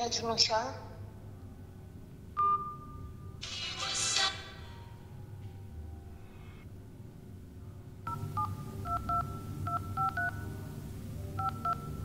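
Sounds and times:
phone keypad beeps: 2.4s - 3.0s, 8.1s - 10.5s, 11.4s - 12.0s
low hum: 4.4s - 12.0s.

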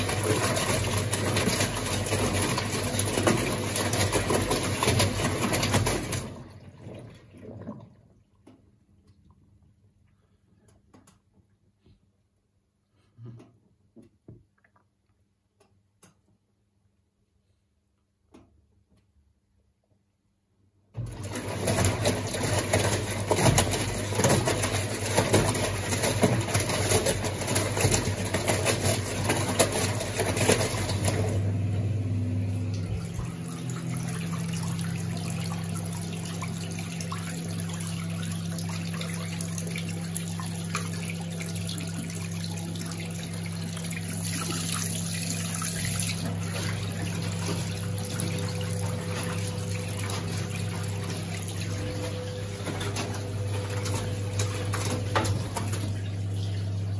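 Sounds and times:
water gushing into a sink: 0.0s - 8.5s, 21.0s - 56.9s
drain pump humming: 0.0s - 9.2s, 20.9s - 56.9s.

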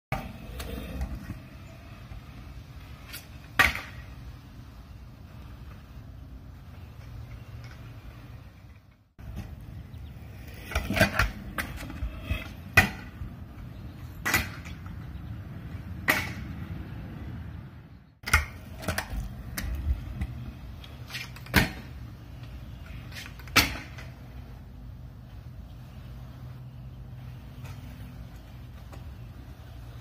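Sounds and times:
scooter wheels rolling on pavement: 0.1s - 30.0s
scooter deck clacking on ground: 3.0s - 4.2s, 9.2s - 15.1s, 18.2s - 24.2s.

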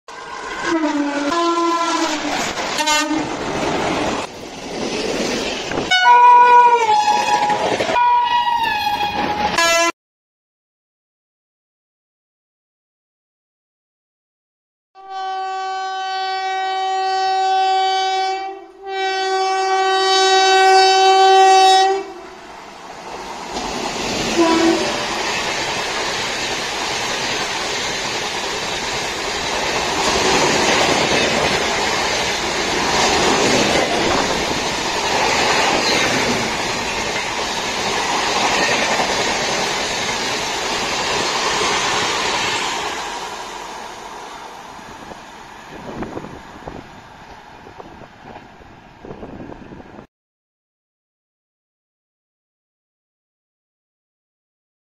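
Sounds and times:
train coaches rattling over rails: 0.2s - 9.7s, 22.6s - 49.8s
locomotive air horn: 0.6s - 3.3s, 5.9s - 10.0s, 15.0s - 22.3s, 24.3s - 25.0s.

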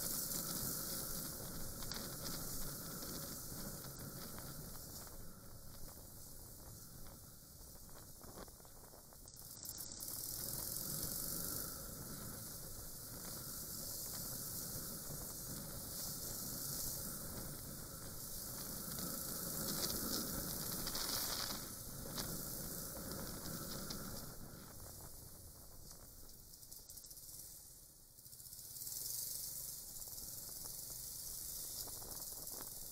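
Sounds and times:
wind and road hiss: 0.0s - 32.9s
motorcycle engine running: 27.3s - 32.9s.

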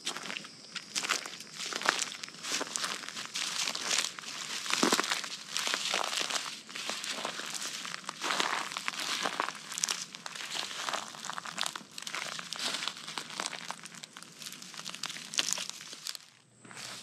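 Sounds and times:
footsteps on dry pine needles: 0.0s - 17.0s.

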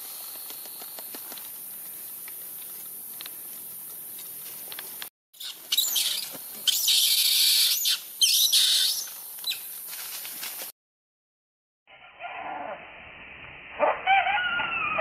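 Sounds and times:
young monkey screaming: 5.4s - 9.0s, 14.0s - 15.0s.

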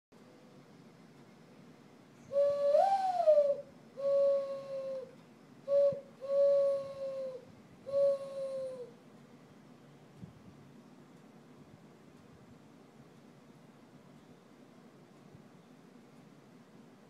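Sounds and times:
person imitating dove cooing: 2.3s - 5.1s, 5.7s - 9.0s.

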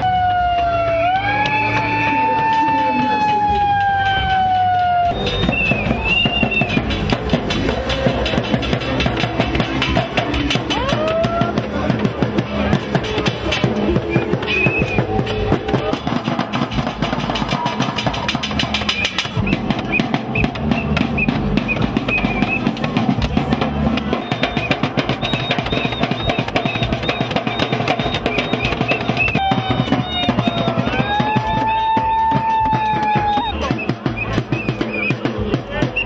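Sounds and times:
noisemakers clattering: 2.8s - 36.0s
marching drum beating rapidly: 3.2s - 36.0s.

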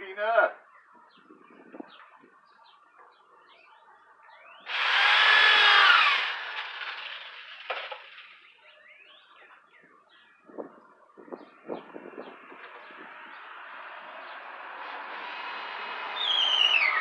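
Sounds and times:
electric drill driving screw: 4.7s - 8.3s.

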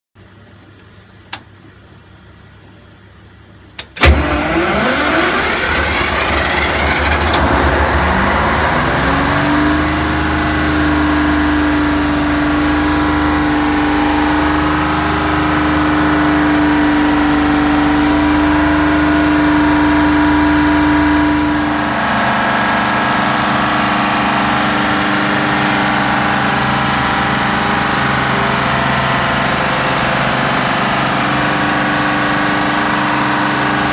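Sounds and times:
diesel engine starting and running: 0.2s - 33.9s
panel switch click: 3.8s - 4.2s
rising whine: 4.0s - 33.9s.

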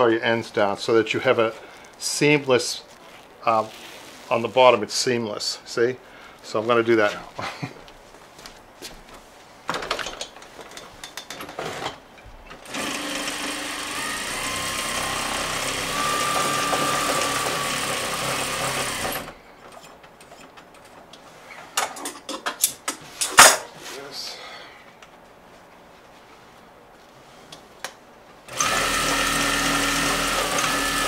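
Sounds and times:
sewing machine stitching: 12.6s - 19.4s, 28.5s - 31.0s.

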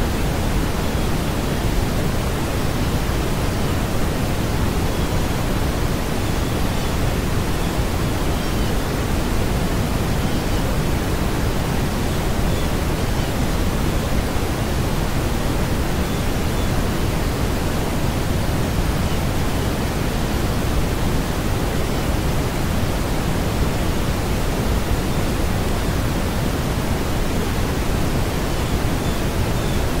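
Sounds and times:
steady hiss of noise: 0.0s - 30.0s.

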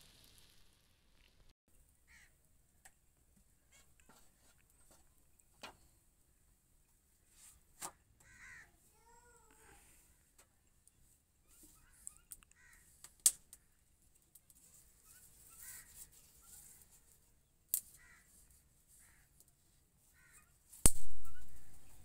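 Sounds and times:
short bird calls: 20.2s - 22.0s.

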